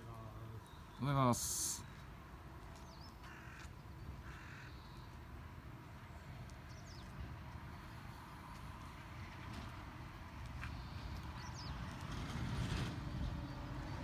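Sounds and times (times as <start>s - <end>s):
low outdoor background: 0.0s - 14.0s
crow cawing: 3.2s - 5.0s.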